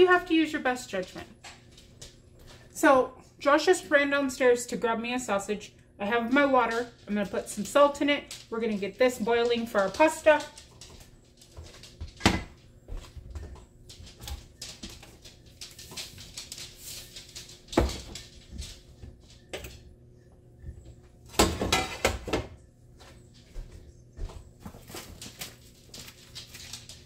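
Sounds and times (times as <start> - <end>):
pots knocking and clattering: 12.0 - 12.6, 21.3 - 22.6.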